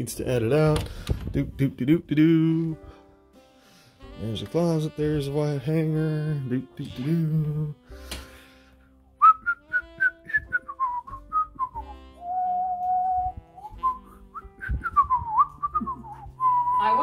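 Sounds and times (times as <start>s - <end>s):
person whistling a tune: 9.2s - 17.0s.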